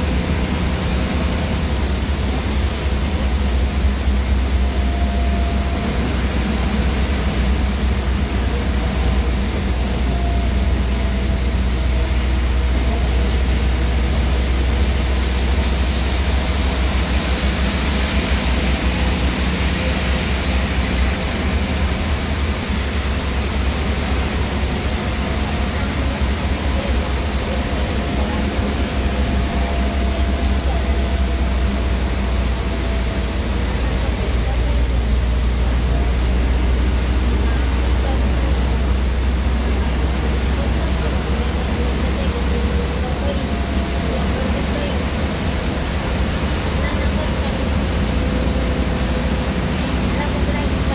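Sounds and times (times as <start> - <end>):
bus engine drone and road noise: 0.0 - 50.9
rain hissing on windscreen: 0.0 - 50.9.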